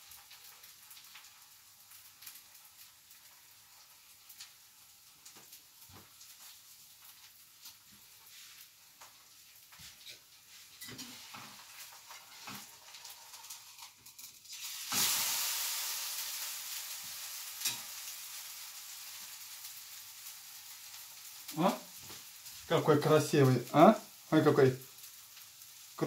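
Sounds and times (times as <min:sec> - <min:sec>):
batter sizzling in pan: 0:00.0 - 0:26.0
spatula scraping frying pan: 0:10.5 - 0:13.6.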